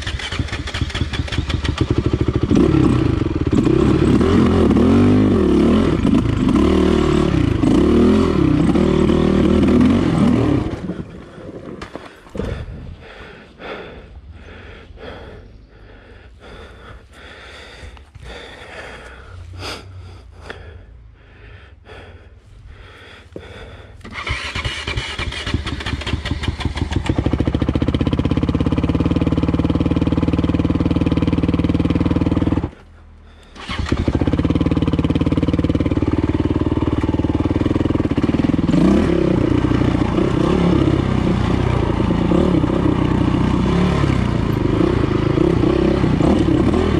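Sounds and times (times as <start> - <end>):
dirt bike engine revving: 0.0 - 12.7, 24.0 - 46.9.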